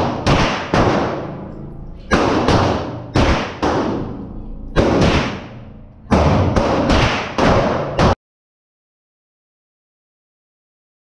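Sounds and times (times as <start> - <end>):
gunshots echoing indoors: 0.0 - 8.2.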